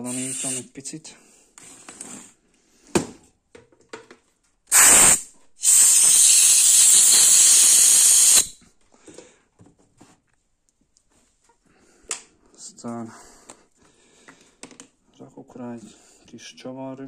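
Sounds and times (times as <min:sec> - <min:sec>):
aerosol spray hissing: 0:00.0 - 0:00.7, 0:04.7 - 0:08.6.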